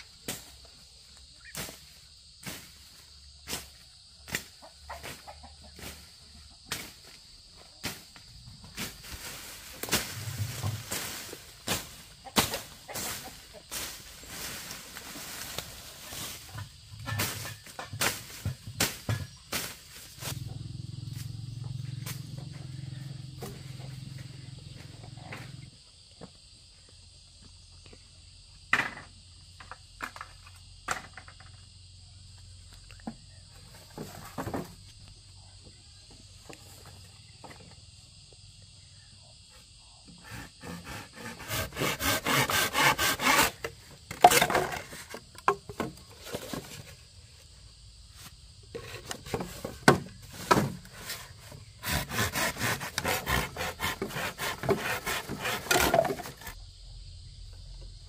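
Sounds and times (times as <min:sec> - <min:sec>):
high insect drone: 0:00.0 - 0:58.0
bamboo poles knocking and rustling: 0:03.5 - 0:20.5, 0:28.8 - 0:31.6, 0:32.9 - 0:35.0, 0:40.8 - 0:47.1, 0:48.2 - 0:56.6
scraping strokes: 0:40.2 - 0:45.2, 0:48.8 - 0:56.6.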